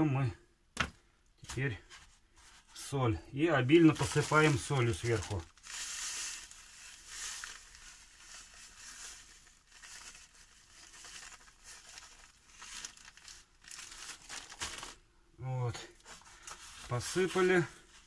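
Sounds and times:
plastic bag crinkling: 0:03.7 - 0:15.0.

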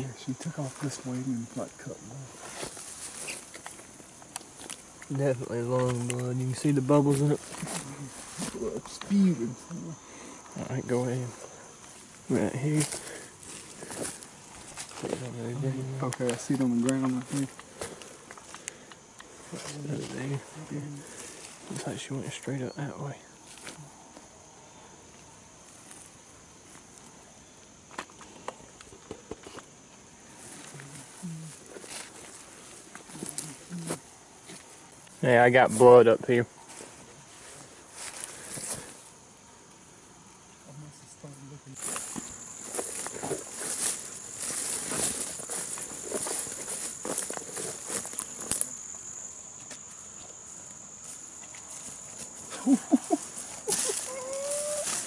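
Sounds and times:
brush rustling underfoot: 0:00.0 - 0:22.5, 0:29.6 - 0:36.0, 0:36.6 - 0:39.3, 0:41.7 - 0:55.0
high-pitched insect buzz: 0:00.0 - 0:28.8, 0:29.4 - 0:36.0, 0:37.4 - 0:55.0
footsteps crunching on pine straw: 0:00.6 - 0:05.2, 0:05.8 - 0:09.5, 0:10.7 - 0:18.6, 0:41.8 - 0:49.0, 0:49.6 - 0:55.0
drawn-out rising call: 0:53.6 - 0:55.0.

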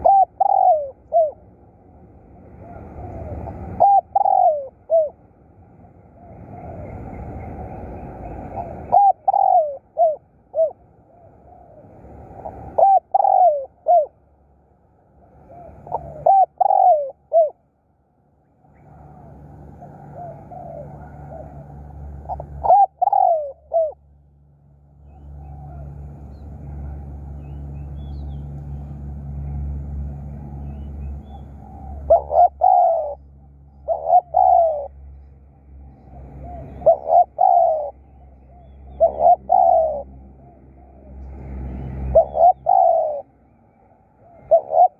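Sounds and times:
dove cooing: 0:00.0 - 0:01.5, 0:02.4 - 0:05.2, 0:06.0 - 0:07.2, 0:08.2 - 0:14.2, 0:15.3 - 0:17.6, 0:18.8 - 0:24.0, 0:25.1 - 0:27.1, 0:30.3 - 0:35.1, 0:35.8 - 0:43.4, 0:44.2 - 0:44.9.

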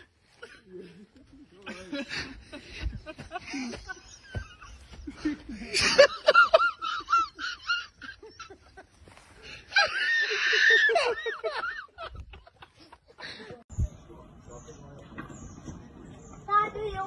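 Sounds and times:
person laughing hard: 0:01.6 - 0:09.0, 0:09.7 - 0:13.4.

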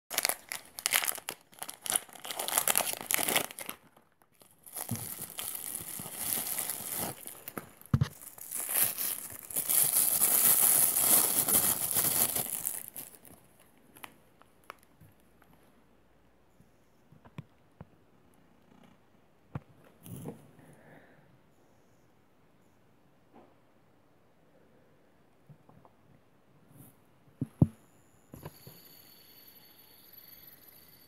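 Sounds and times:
plastic bag crinkling and tearing: 0:00.1 - 0:14.9.

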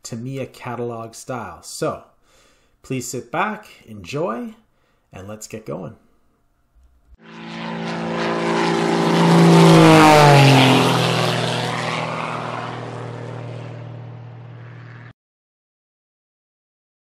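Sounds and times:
propeller airplane flying past: 0:07.2 - 0:15.2.

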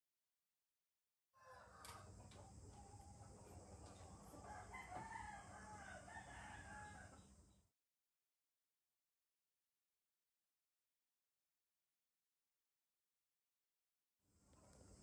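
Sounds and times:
faint steady hum: 0:01.4 - 0:07.7, 0:14.3 - 0:15.0.

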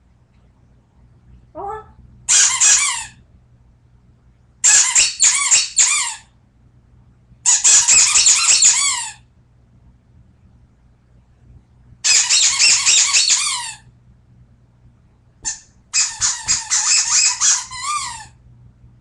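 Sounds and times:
squeaky dog toy squeaking: 0:01.7 - 0:03.2, 0:04.6 - 0:06.3, 0:07.4 - 0:09.2, 0:12.0 - 0:13.9, 0:15.4 - 0:18.4.

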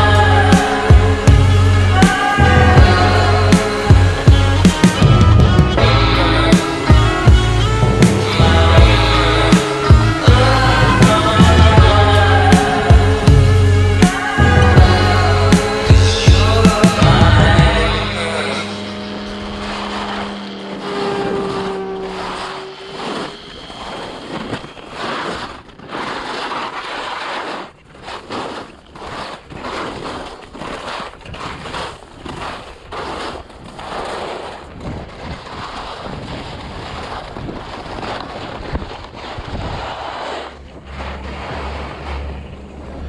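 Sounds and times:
low steady hum: 0:00.0 - 0:24.8
skis scraping over snow: 0:00.0 - 0:43.0
wind on microphone: 0:00.0 - 0:43.0.

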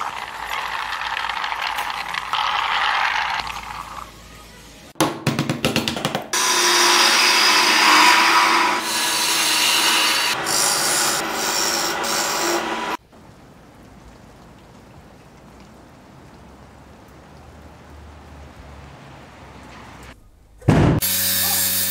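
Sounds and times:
wood lathe tool cutting wood: 0:06.4 - 0:13.0.

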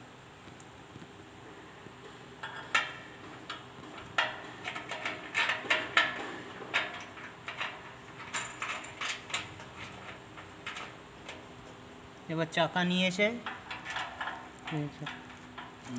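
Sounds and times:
metal nut and bolt clinking: 0:02.4 - 0:11.8, 0:13.4 - 0:15.9.

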